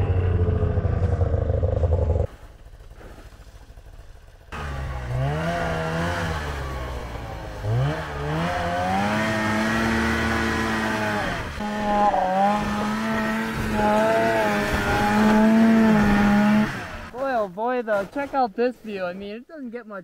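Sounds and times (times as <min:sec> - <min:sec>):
snowmobile engine revving: 0:04.5 - 0:17.2.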